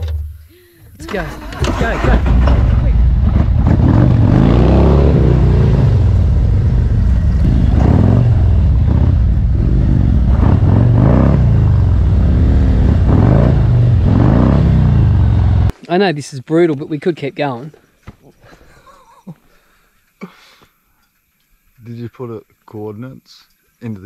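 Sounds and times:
motorcycle engine revving: 1.1s - 15.7s.

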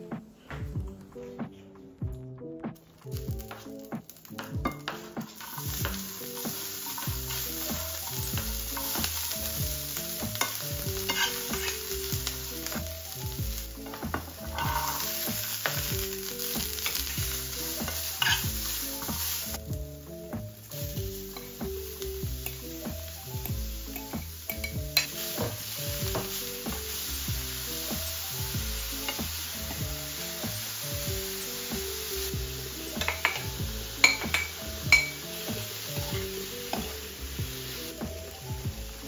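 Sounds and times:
vegetables sizzling in a frying pan: 3.0s - 39.0s
utensil stirring food: 3.4s - 39.0s.

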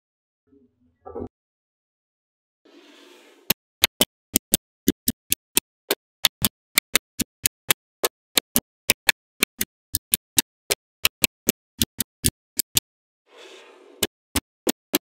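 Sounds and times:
magnetic balls clicking together: 3.8s - 12.9s, 14.0s - 15.0s.

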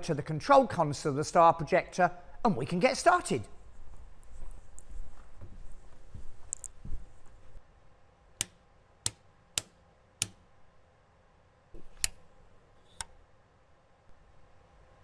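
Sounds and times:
soft rustle: 3.5s - 7.6s
push-buttons clicking: 11.8s - 12.2s.

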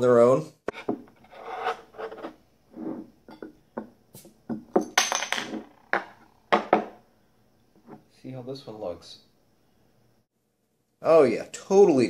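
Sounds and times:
glass and metal clinking: 3.2s - 3.9s, 4.5s - 7.0s.

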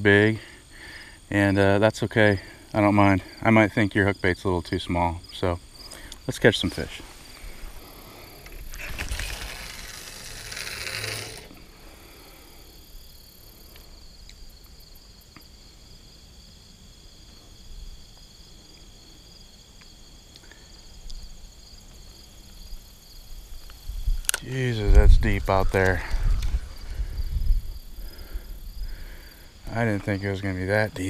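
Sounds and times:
insects buzzing: 0.0s - 31.0s
faint ticks: 13.6s - 14.7s, 19.8s - 21.2s.

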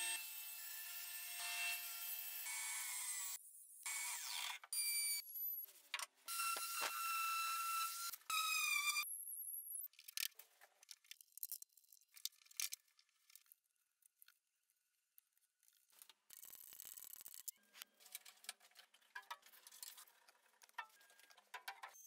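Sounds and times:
wooden parts clicking and knocking: 9.9s - 13.5s, 16.1s - 22.0s.

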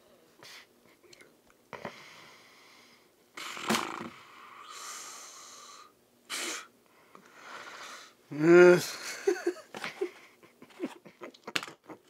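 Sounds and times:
man breathing noisily: 4.2s - 8.2s.

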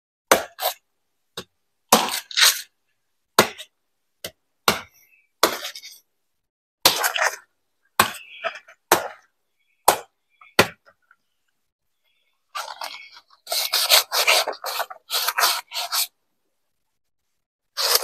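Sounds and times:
rasping cutting strokes: 12.6s - 16.1s.

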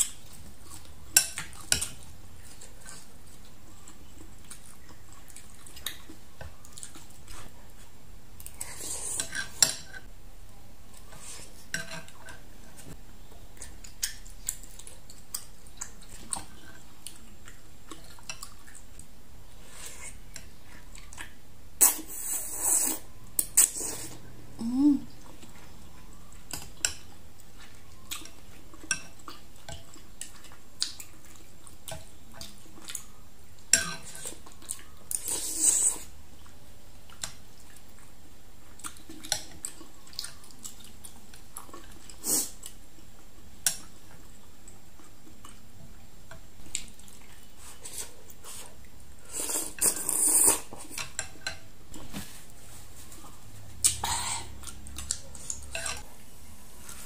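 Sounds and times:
mouth sounds eating noodles: 21.8s - 25.7s, 47.6s - 51.0s.

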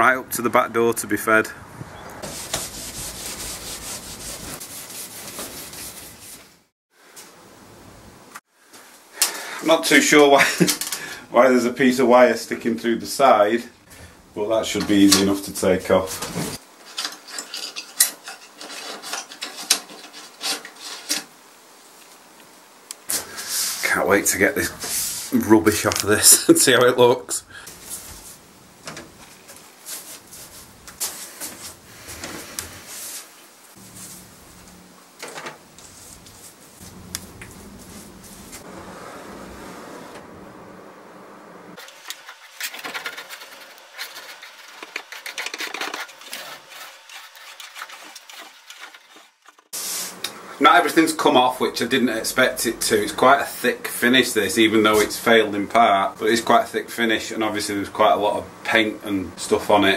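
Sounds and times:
low hum and hiss: 7.0s - 16.8s, 21.3s - 41.8s, 49.8s - 59.9s
wire scraping against wood: 16.0s - 21.4s, 41.8s - 50.2s.

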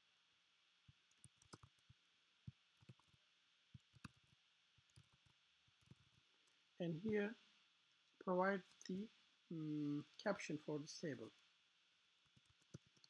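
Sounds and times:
computer keyboard typing: 1.0s - 2.0s, 2.8s - 3.2s, 3.8s - 6.2s, 12.3s - 13.0s.

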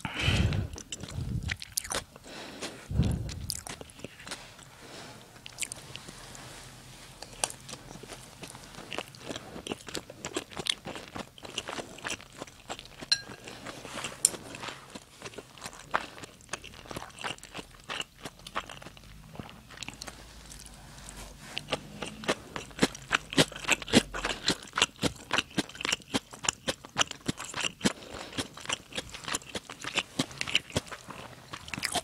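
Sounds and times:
close chewing with wet mouth clicks: 0.6s - 4.7s, 5.4s - 6.0s, 7.2s - 32.0s
dull low thumps: 1.0s - 1.6s, 2.9s - 3.8s.

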